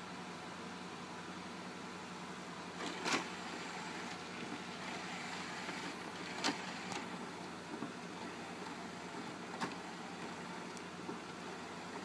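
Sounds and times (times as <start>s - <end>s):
cd changer motor whirring: 2.8s - 12.0s.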